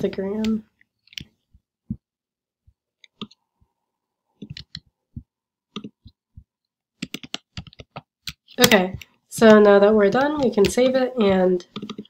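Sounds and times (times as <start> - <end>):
mouse and keyboard clicks: 3.0 - 3.4, 4.4 - 4.9, 7.0 - 12.0.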